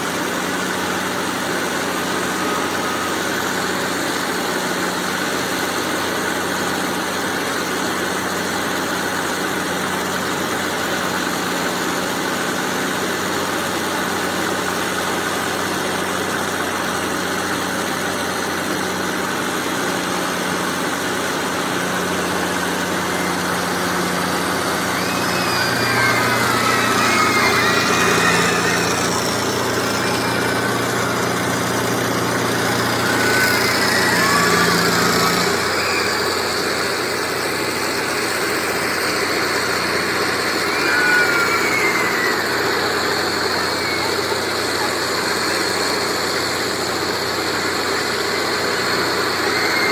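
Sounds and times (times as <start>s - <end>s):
ride machinery humming: 13.2s - 49.9s.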